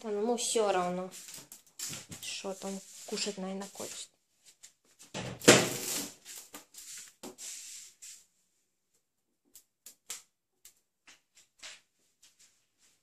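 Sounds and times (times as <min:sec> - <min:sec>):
ferret scampering on tiled floor: 0:00.6 - 0:04.0.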